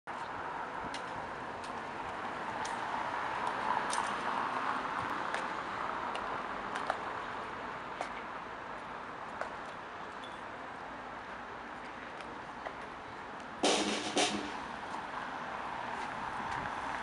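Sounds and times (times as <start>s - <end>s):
outdoor background noise: 0.1s - 17.0s
light sharp clicks and taps: 6.1s - 7.0s.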